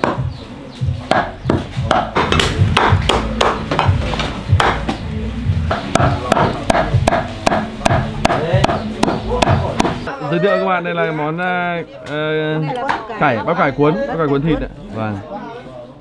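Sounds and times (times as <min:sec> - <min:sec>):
knife chopping meat: 0:01.1 - 0:03.9, 0:05.7 - 0:10.0.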